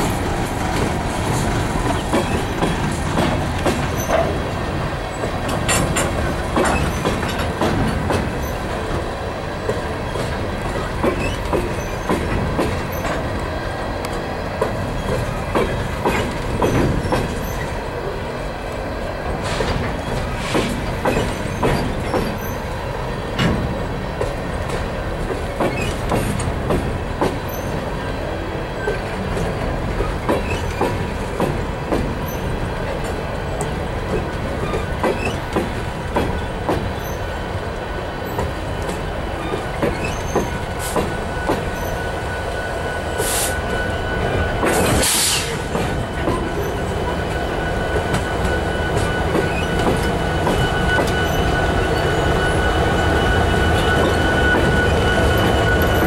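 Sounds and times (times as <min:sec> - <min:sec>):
train cars rumbling: 0:00.0 - 0:56.0
thin steady squeal: 0:46.5 - 0:56.0.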